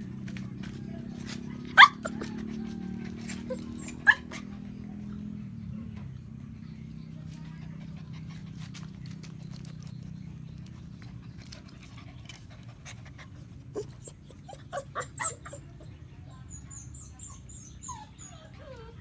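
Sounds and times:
puppies yapping: 0:01.1 - 0:04.8, 0:07.5 - 0:19.0
puppy whining: 0:01.5 - 0:04.8, 0:07.4 - 0:19.0.

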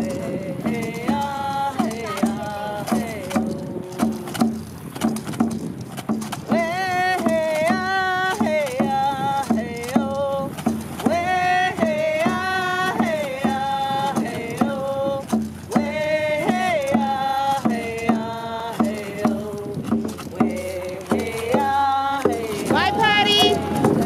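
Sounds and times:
women singing together: 0:00.0 - 0:04.4, 0:06.5 - 0:24.0
hand drum beat: 0:00.0 - 0:24.0.

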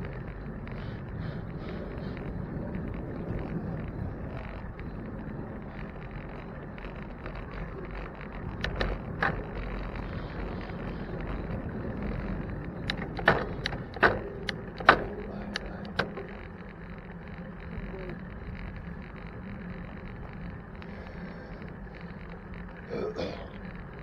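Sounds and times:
road and wind noise: 0:00.0 - 0:24.0
sharp clicks and knocks: 0:05.8 - 0:21.0.

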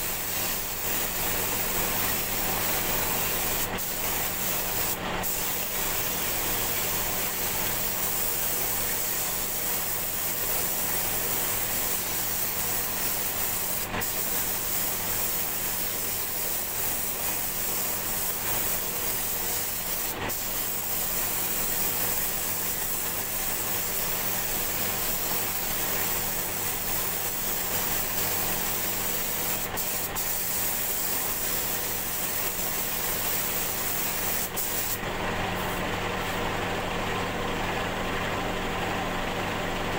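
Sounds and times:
paint spray gun hissing: 0:00.0 - 0:35.0.

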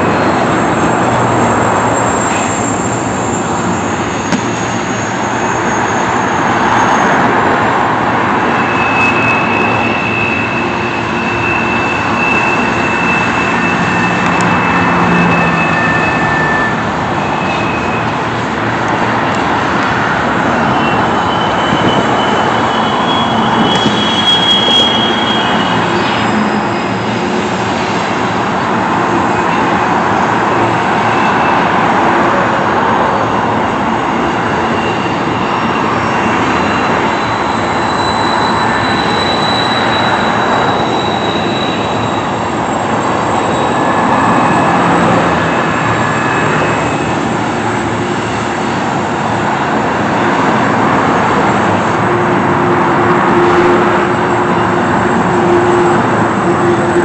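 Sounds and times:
high wheel squeal: 0:00.0 - 0:57.0
train wheels rumbling on rail: 0:00.0 - 0:57.0
diesel engine hum: 0:41.7 - 0:57.0.

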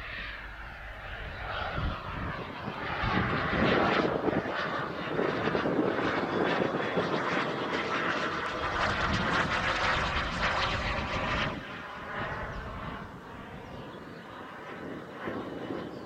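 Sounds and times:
model jet turbine flying overhead: 0:00.0 - 0:16.0.

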